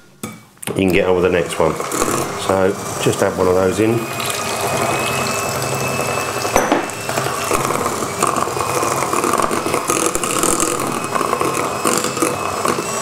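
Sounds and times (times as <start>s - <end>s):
electric hand mixer running: 1.1s - 13.0s
beaters knocking against glass: 6.5s - 6.9s.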